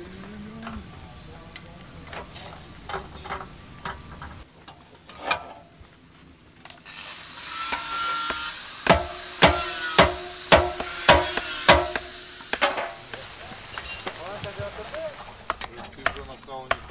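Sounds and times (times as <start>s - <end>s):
hammer striking hot steel: 7.5s - 16.9s.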